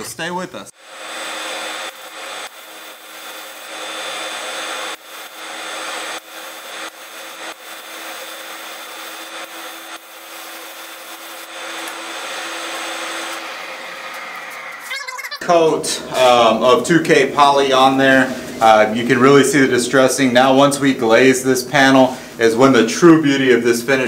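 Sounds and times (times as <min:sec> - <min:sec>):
spray gun hissing: 0:00.8 - 0:14.8.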